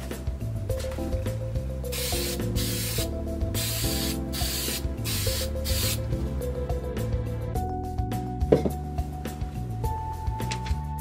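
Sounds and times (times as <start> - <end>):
aerosol can hissing: 1.8 - 6.1.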